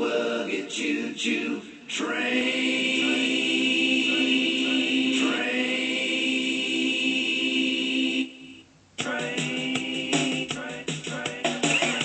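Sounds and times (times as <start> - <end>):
voices singing a long chord: 0.0 - 12.0.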